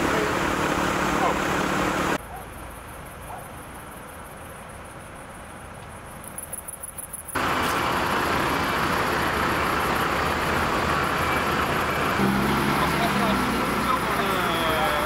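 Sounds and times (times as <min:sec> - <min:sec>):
vehicle engines idling: 0:00.0 - 0:03.0, 0:07.3 - 0:15.0
insect chirping: 0:02.2 - 0:07.4.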